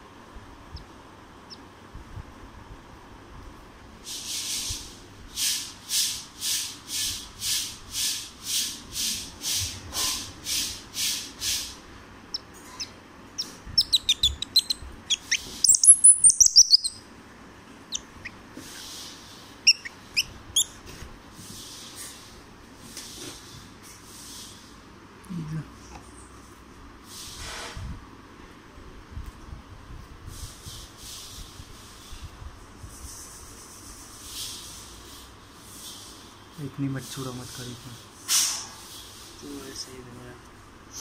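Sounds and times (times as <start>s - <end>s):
squirrel chirping: 0.7s - 1.7s, 12.3s - 17.0s, 17.8s - 19.0s, 19.6s - 20.8s
squirrel squeaking: 12.3s - 17.0s, 17.8s - 19.0s, 19.6s - 20.8s.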